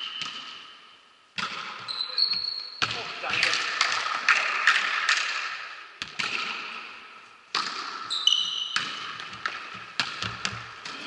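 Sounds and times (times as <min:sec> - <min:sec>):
volleyball being struck: 0:01.4 - 0:01.9, 0:02.8 - 0:11.0
shoe squeaks: 0:01.8 - 0:02.8, 0:08.1 - 0:08.8.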